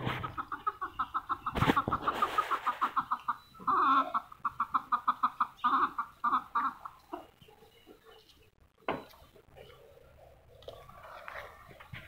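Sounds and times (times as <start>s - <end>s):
chicken squawks: 0.0s - 7.3s
chicken clucking: 0.0s - 12.0s.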